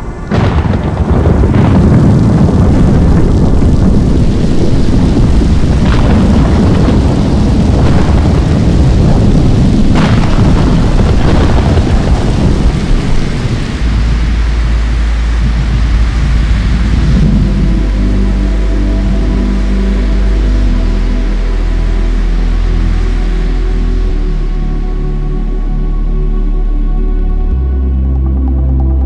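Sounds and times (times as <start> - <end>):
sharp crackling hits: 0.0 - 21.3
deep drone: 0.0 - 29.0
thunder-like rumble: 0.0 - 29.0
held musical tones: 14.0 - 29.0.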